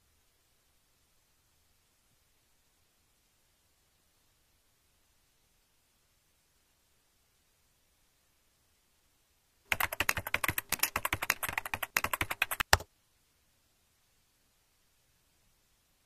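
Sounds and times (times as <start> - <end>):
fast typing on computer keyboard: 9.7 - 12.9.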